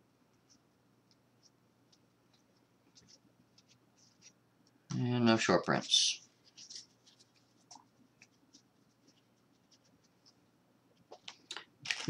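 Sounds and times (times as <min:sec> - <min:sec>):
trading cards scratching and ticking: 0:00.3 - 0:04.4, 0:05.7 - 0:10.4.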